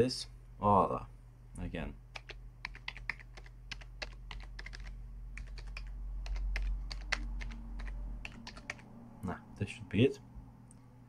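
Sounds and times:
low steady hum: 0.0 - 11.0
keyboard typing clicks: 2.1 - 8.9.

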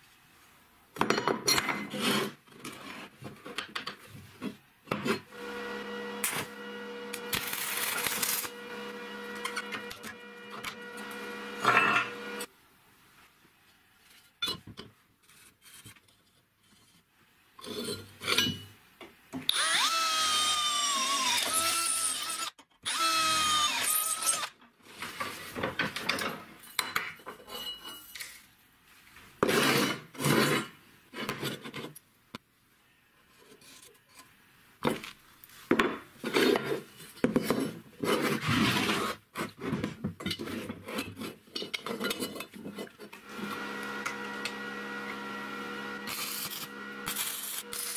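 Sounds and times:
power tool running: 5.3 - 12.5, 19.5 - 24.5, 43.2 - 47.9
scraping strokes on metal: 6.2 - 12.5, 46.1 - 47.9.

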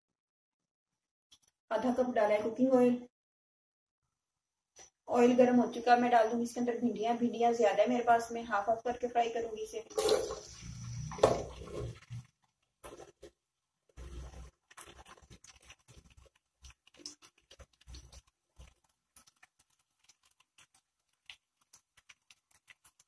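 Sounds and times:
hot oil crackling and spitting: 9.8 - 23.0.

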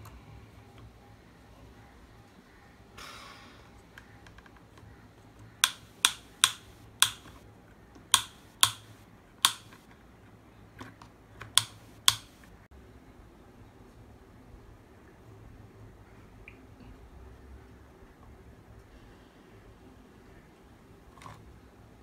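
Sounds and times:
sharp plastic clicks: 3.9 - 7.4, 8.0 - 10.0, 10.8 - 12.6.

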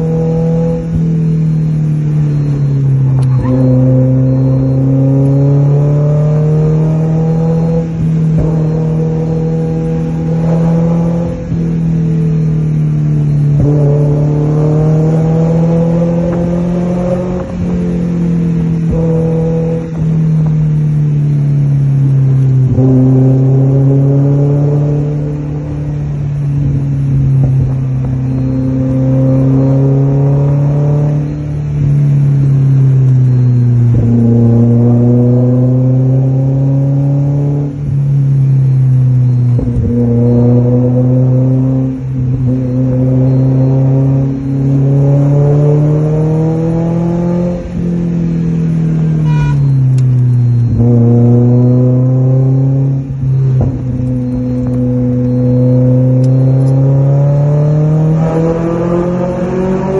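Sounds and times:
car engine accelerating through gears: 0.0 - 59.9.

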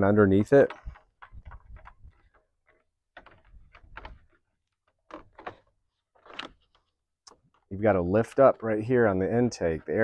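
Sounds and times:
plastic cover clicking and rustling: 0.4 - 7.6.

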